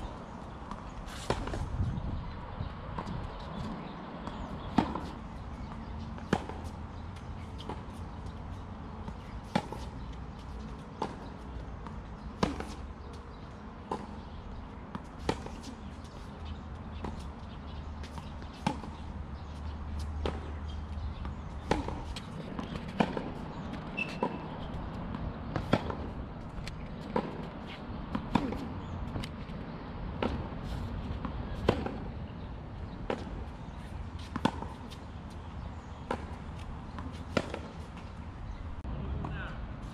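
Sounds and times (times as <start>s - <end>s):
tennis ball bouncing: 0.4s - 1.7s, 2.9s - 38.3s
tennis racquet hitting ball: 12.4s - 12.8s, 21.6s - 29.3s, 36.1s - 37.8s.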